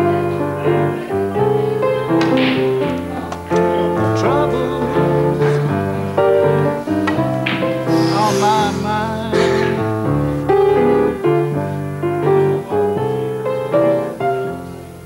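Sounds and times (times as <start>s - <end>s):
keyboard chords over bass line: 0.0s - 15.0s.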